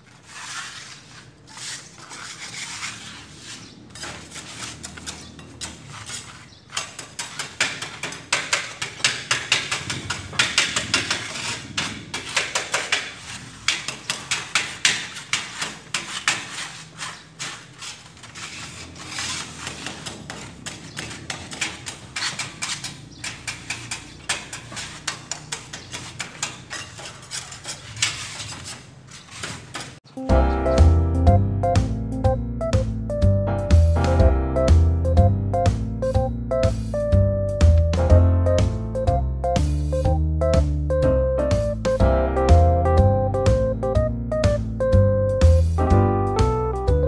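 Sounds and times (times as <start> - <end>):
sandpaper scraping on wall: 0.0 - 30.1.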